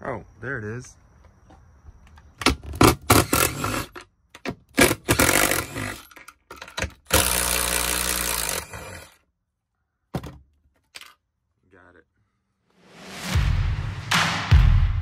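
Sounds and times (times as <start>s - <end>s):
impact driver bursts: 2.8s - 4.0s, 4.7s - 6.1s, 6.9s - 9.2s.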